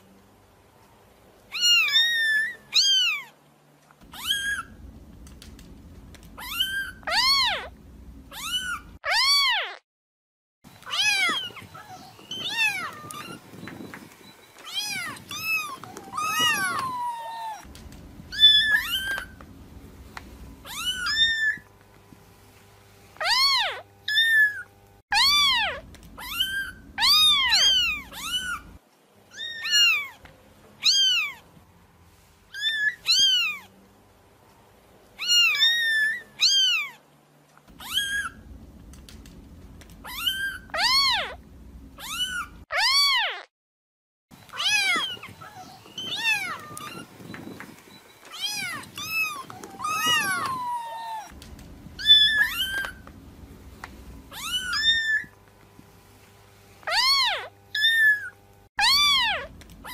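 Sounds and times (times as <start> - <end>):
kittens meowing: 1.5 - 3.3, 4.0 - 4.8, 6.3 - 9.8, 10.8 - 13.8, 14.6 - 17.7, 18.3 - 19.4, 20.6 - 21.7, 23.2 - 30.2, 30.8 - 31.4, 32.5 - 33.7, 35.2 - 37.0, 37.7 - 38.5, 39.9 - 43.5, 44.5 - 47.2, 48.2 - 51.4, 52.0 - 53.1, 54.3 - 55.4, 56.9 - 59.9.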